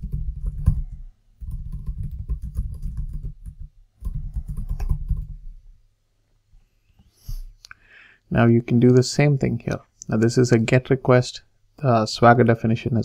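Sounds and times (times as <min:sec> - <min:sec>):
typing on computer keyboard: 0:00.0 - 0:05.4.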